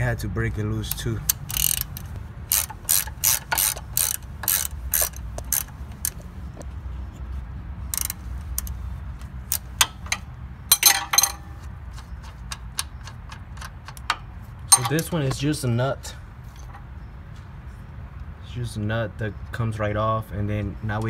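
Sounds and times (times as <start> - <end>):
ratchet wrench clicking: 0.8 - 6.2, 7.9 - 15.4.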